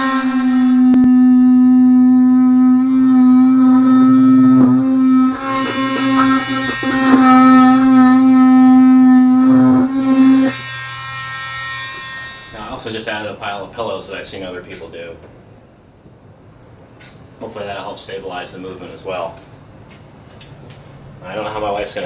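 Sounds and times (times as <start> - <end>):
oscillating tool cutting plastic: 0.0 - 12.2.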